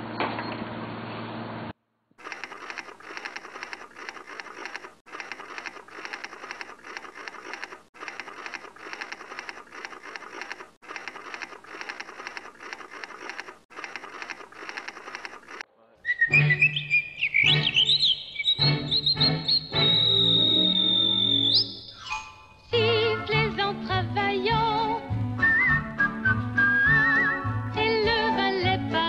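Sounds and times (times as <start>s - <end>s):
typewriter keystrokes clattering: 2.3s - 15.6s.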